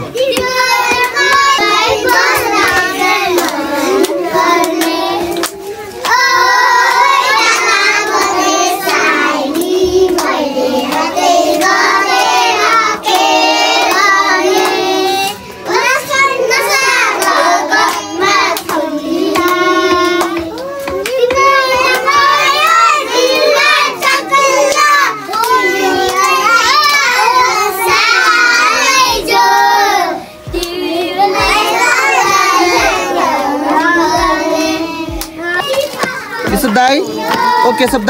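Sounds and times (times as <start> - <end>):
children singing: 0.0 - 38.0
hand clapping: 0.2 - 28.4, 30.5 - 30.8, 35.1 - 38.0.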